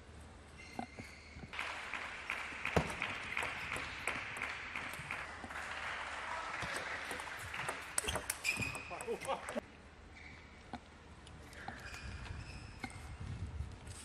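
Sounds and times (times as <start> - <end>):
crowd clapping: 1.5 - 9.6
table tennis ball clicks: 6.6 - 9.6.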